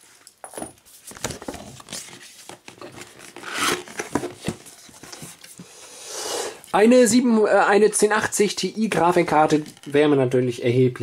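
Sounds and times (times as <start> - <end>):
cardboard box rustling: 1.1 - 5.4
cardboard scrape: 1.4 - 5.4.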